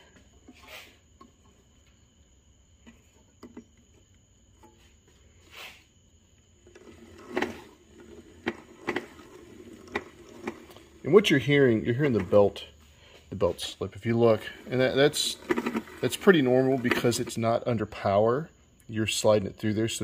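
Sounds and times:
drive belt rubbing and ticking: 6.6 - 12.6, 14.3 - 17.4.

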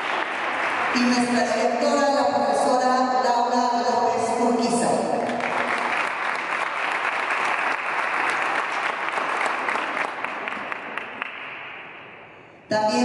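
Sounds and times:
audience applause: 0.0 - 1.0, 5.3 - 11.7.

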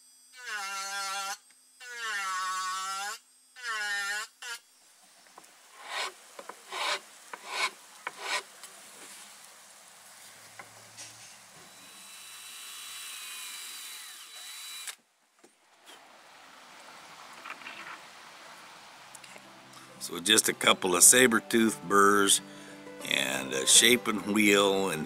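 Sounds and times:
power tool high whine: 0.0 - 4.8, 11.6 - 15.0
hand file scraping wood: 5.8 - 8.5.

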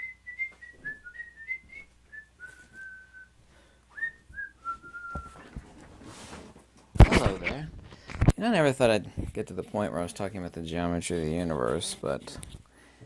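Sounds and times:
man whistling a tune: 0.0 - 5.5
thumps: 4.3 - 8.4.

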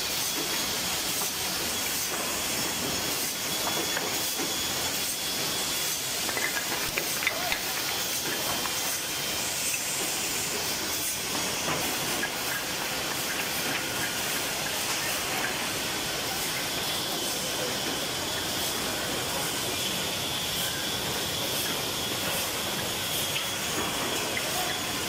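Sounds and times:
wood blocks clacking: 6.2 - 8.0.

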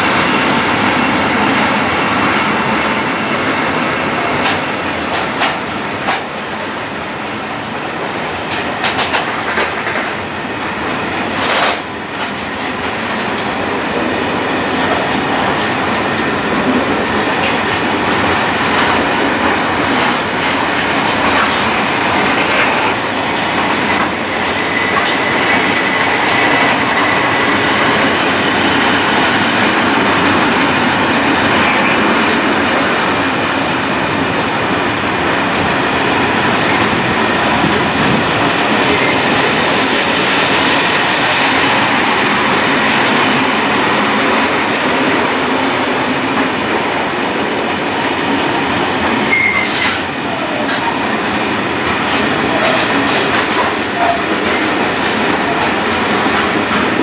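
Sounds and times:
freight train rolling past: 0.0 - 57.0
wheel squeal: 49.3 - 50.0.

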